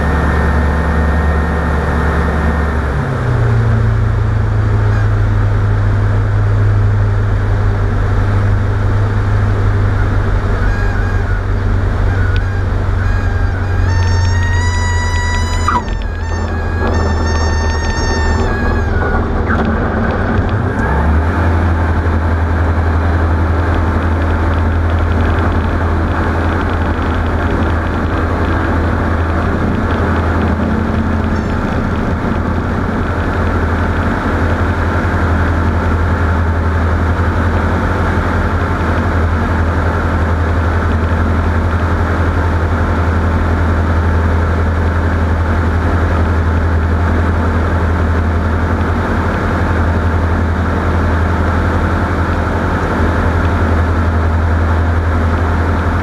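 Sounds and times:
vehicle running drone: 0.0 - 56.0.

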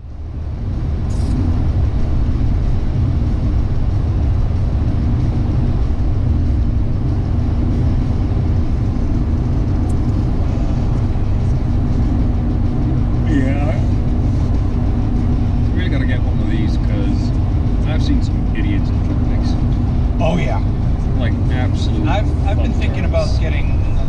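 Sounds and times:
car driving on snowy road: 0.0 - 24.0.

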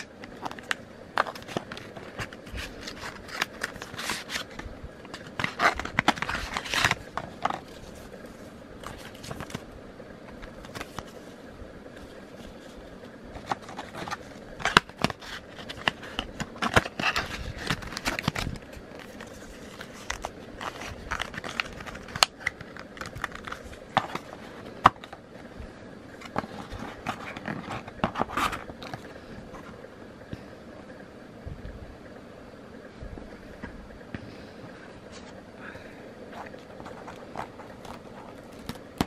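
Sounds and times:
paper crinkling and rustling: 0.0 - 9.7, 10.3 - 25.5, 26.1 - 29.8, 36.3 - 39.0.

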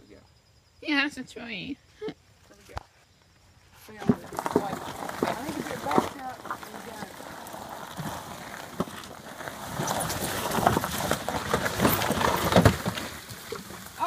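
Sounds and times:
cart thumping and clattering: 4.0 - 14.0
mud and water splashing: 4.2 - 14.0.

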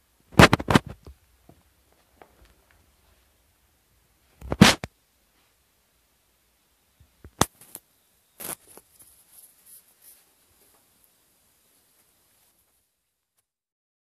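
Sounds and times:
camera handling rustle: 8.4 - 9.5.

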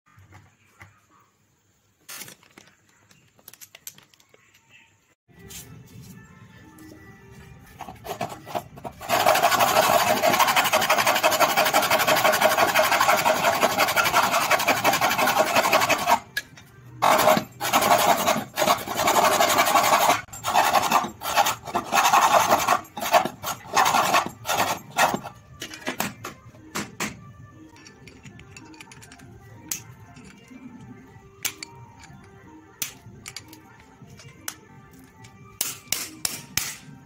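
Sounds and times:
hacksaw sawing metal rod: 7.8 - 16.3, 17.0 - 25.4.

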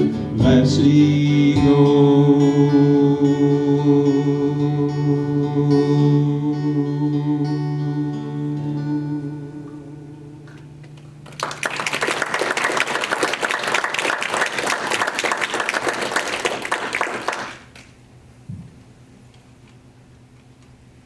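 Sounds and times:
acoustic guitar chord: 0.0 - 11.2
small audience applauding: 10.9 - 18.0.

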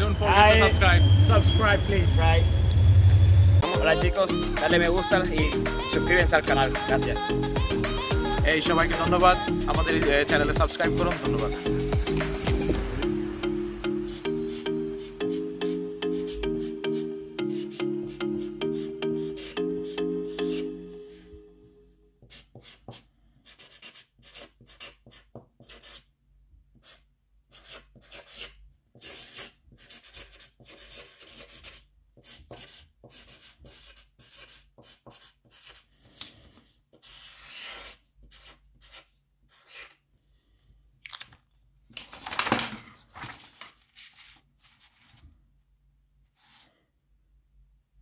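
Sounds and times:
marker scratching on paper: 14.0 - 21.0, 22.2 - 26.1, 26.8 - 36.2, 36.9 - 40.0
paper rustling: 41.0 - 45.4.

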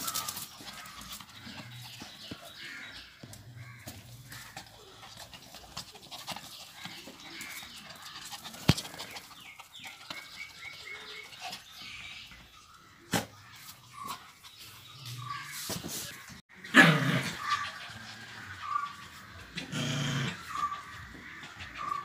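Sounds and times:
puppies scuffling and rustling: 0.0 - 10.2.

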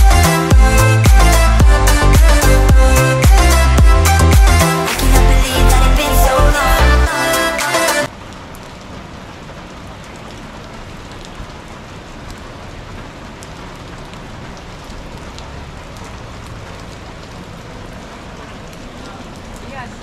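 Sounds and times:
loud background music: 0.0 - 8.1
rain falling on street and umbrellas: 8.0 - 20.0.

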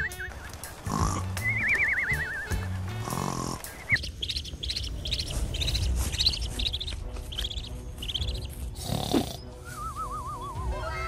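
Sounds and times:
duckling peeping: 3.8 - 8.7.

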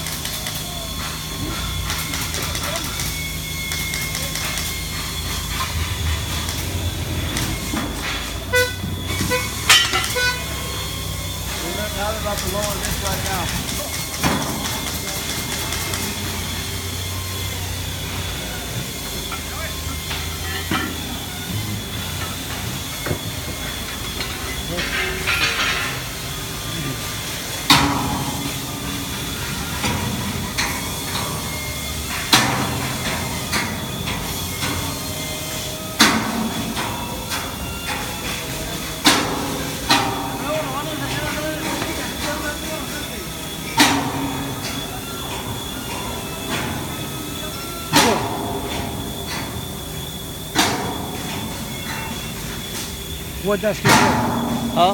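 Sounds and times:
hammer striking steel: 0.0 - 11.0, 22.2 - 26.3, 27.0 - 54.9
factory machinery rumble: 0.0 - 54.9
forklift warning toots: 0.0 - 54.9.

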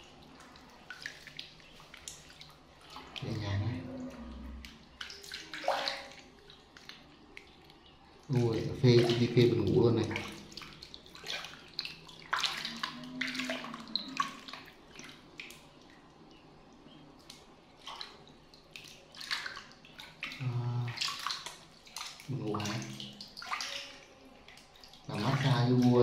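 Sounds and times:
water splashing in metal basin: 0.0 - 16.0, 17.2 - 26.0
low voice: 3.2 - 4.5, 20.4 - 21.0, 22.3 - 23.0.

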